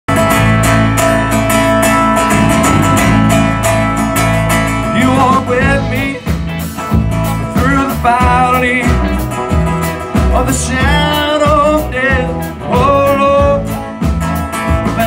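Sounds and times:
live band playing: 0:00.1 - 0:15.0
gliding melody line: 0:00.6 - 0:06.2.

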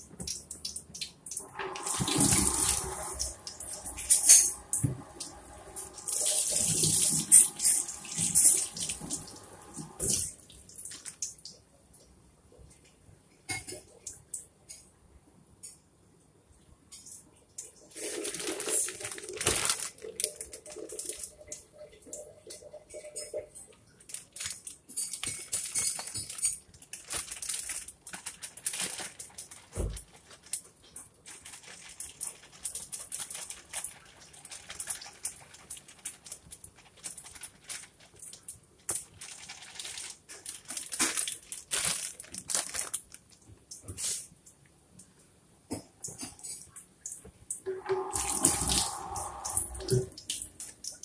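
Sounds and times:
tap running into a sink: 0:01.4 - 0:10.3, 0:47.7 - 0:50.4.

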